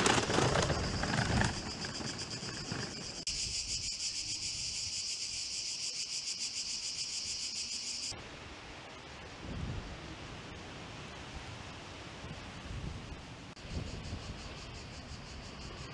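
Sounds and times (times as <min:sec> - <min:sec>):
motor scooter passing: 0:00.0 - 0:03.2
cicadas buzzing: 0:00.0 - 0:08.2, 0:13.6 - 0:15.9.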